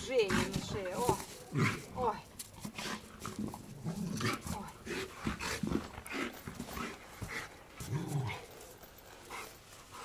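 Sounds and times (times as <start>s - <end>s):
dog panting: 4.4s - 10.0s
dog growling: 7.8s - 8.6s.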